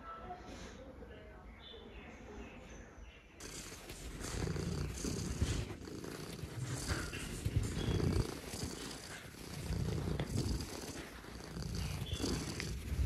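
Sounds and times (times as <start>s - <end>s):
cat purring: 3.4s - 13.0s.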